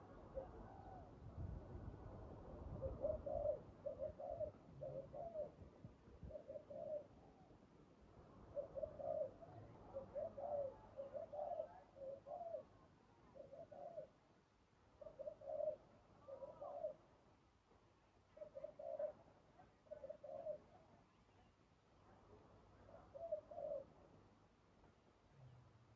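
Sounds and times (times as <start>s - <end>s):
dove cooing: 0.0s - 1.1s, 2.7s - 7.5s, 8.5s - 14.2s, 15.0s - 17.0s, 18.4s - 20.8s, 22.9s - 24.0s.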